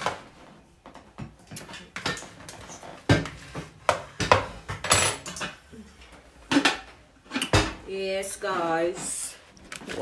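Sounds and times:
pots knocking and clinking: 0.8 - 5.7.

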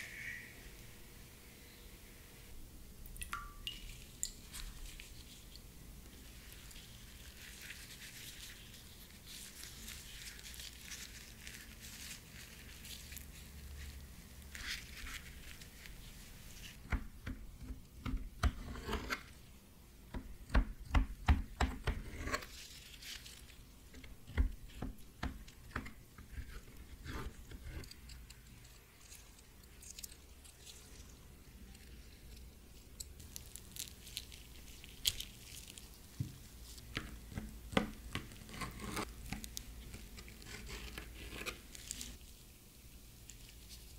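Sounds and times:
wet crinkly rubbing of gloves: 3.8 - 16.8, 22.4 - 24.0, 26.3 - 36.9, 38.4 - 43.9.

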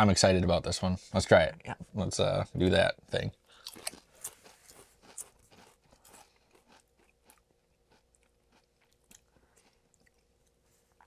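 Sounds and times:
chewing crisp potato chips: 3.4 - 11.0.

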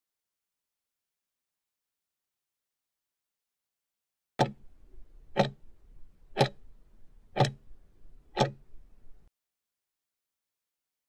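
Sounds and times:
timer ticking: 4.4 - 4.6, 5.3 - 5.6, 6.4 - 6.6, 7.4 - 7.7, 8.3 - 8.7.

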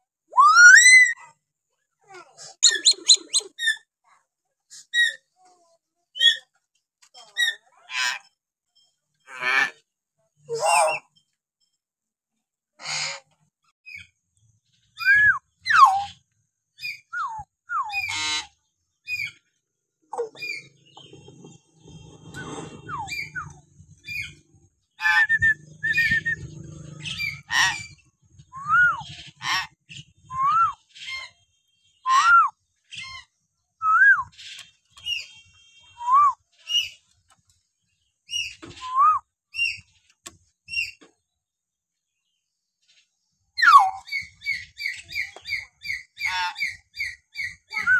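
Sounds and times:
myna bird whistles and squawks: 0.3 - 1.3, 2.6 - 3.9, 15.0 - 16.2, 22.2 - 24.4, 25.0 - 31.4, 43.6 - 47.9.

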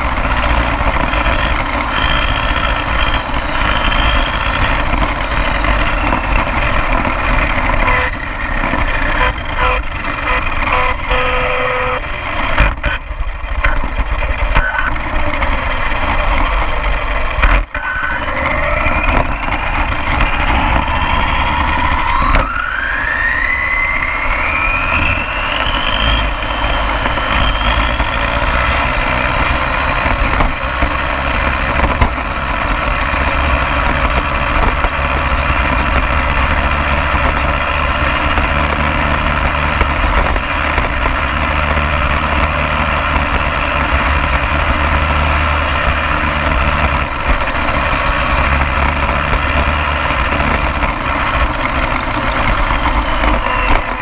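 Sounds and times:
rc car motor whine: 0.0 - 9.8, 17.9 - 54.0
tyres rumbling on asphalt: 0.0 - 54.0.

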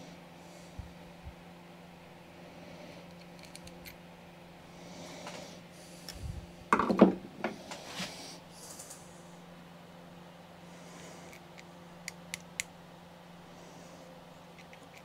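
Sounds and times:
steady low hum: 0.0 - 15.0
small metal clicks and handling: 3.1 - 4.0.

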